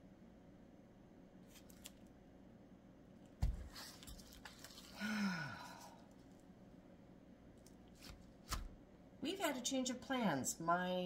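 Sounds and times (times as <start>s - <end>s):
woman sighing: 4.8s - 6.1s.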